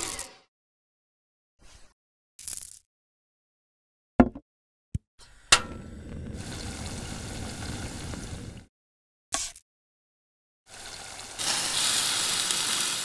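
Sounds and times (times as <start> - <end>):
oil pouring into frying pan: 6.0 - 8.6, 10.7 - 13.0.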